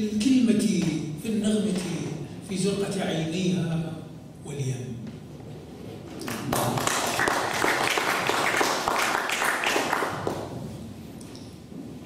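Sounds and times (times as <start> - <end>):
audience applauding: 6.2 - 10.5.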